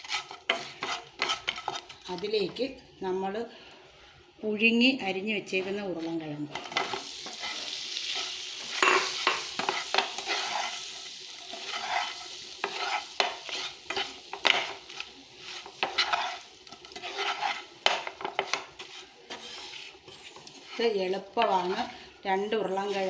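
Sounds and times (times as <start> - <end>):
spatula scraping a pan: 0.0 - 2.0, 5.6 - 23.0
light frying sizzle: 0.0 - 23.0.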